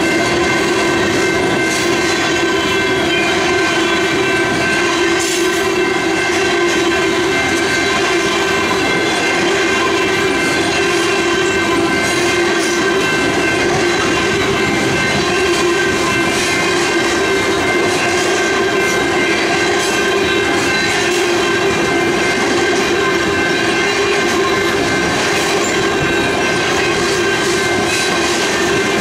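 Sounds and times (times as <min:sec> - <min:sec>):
train wheels clicking over rail joints: 0:00.0 - 0:29.0.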